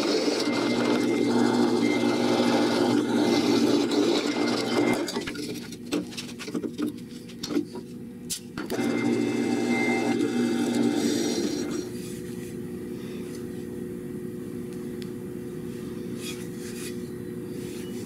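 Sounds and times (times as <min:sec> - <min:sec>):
drill press boring into steel: 0:00.0 - 0:05.1.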